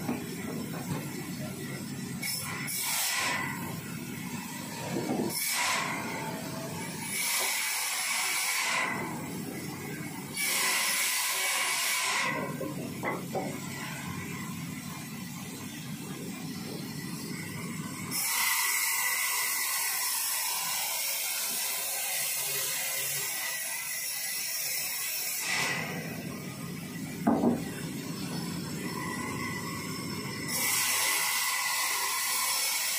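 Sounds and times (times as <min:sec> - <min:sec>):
band saw running: 0:00.0 - 0:32.9
saw blade hissing through wood: 0:02.2 - 0:03.7, 0:05.2 - 0:06.2, 0:06.9 - 0:09.4, 0:10.3 - 0:12.6, 0:18.1 - 0:26.3, 0:28.0 - 0:32.9.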